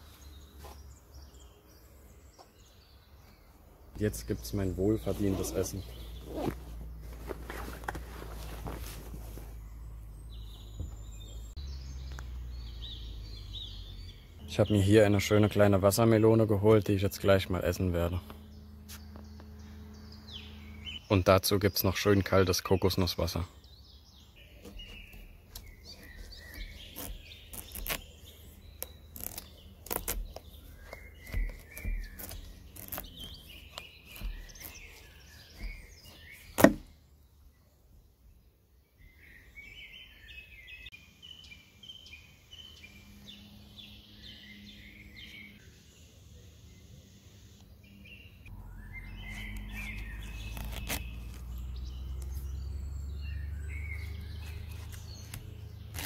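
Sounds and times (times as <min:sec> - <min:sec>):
birds chirping: 0:00.0 - 0:56.0
watermelon cracking: 0:25.6 - 0:36.9, 0:49.3 - 0:52.4, 0:54.8 - 0:56.0.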